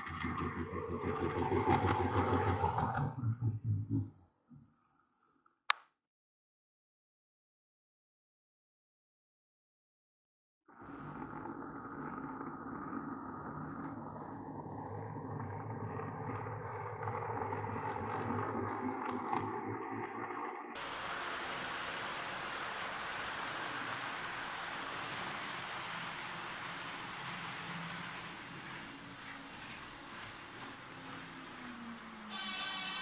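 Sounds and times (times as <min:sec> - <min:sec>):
model coaches rolling hiss: 0:20.8 - 0:29.2
model train motor humming: 0:20.8 - 0:33.0.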